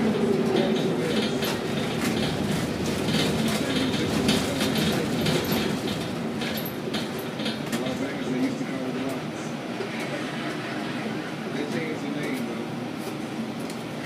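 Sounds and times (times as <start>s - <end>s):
gantry crane machinery rumbling: 0.0s - 8.4s.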